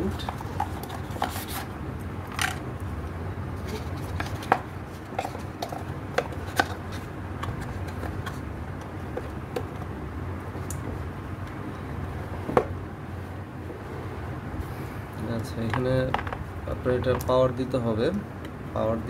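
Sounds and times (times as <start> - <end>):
steady low hum: 0.0 - 19.0
hands handling cardboard box: 3.6 - 8.4.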